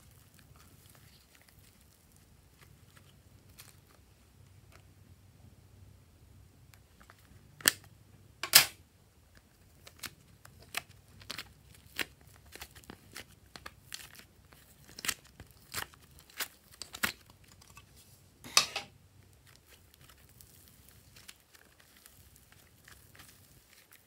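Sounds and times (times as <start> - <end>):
slime being stretched: 0.0 - 4.1, 19.3 - 24.0
crunchy squelch: 0.0 - 4.9, 9.3 - 18.2, 19.2 - 24.0.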